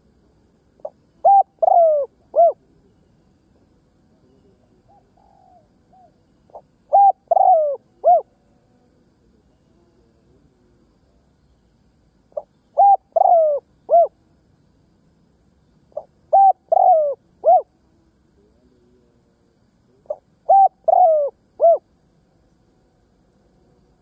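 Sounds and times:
dove cooing: 0.8 - 2.9, 4.3 - 8.7, 12.3 - 14.2, 15.9 - 17.8, 19.9 - 21.9.

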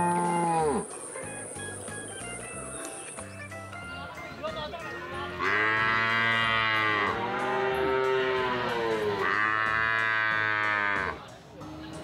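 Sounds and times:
cattle mooing: 0.0 - 0.9, 5.1 - 11.2.

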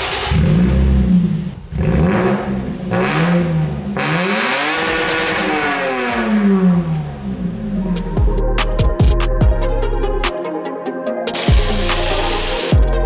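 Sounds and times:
car engine revving: 0.0 - 8.2.

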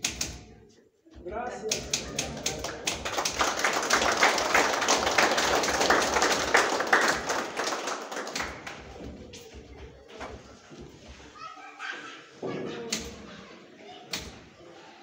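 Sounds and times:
people applauding: 1.8 - 9.2.

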